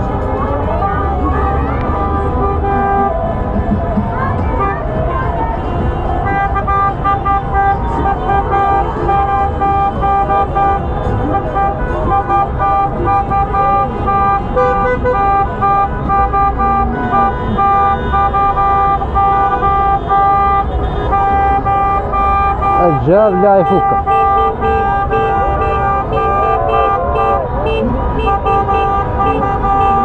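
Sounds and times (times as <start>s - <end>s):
car horns honking: 0.0s - 30.0s
street noise: 0.0s - 30.0s.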